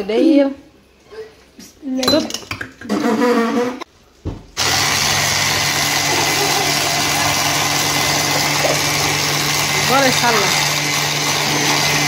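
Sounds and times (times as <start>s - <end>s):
electric mixer beating: 4.6s - 12.0s
person speaking: 8.4s - 10.9s.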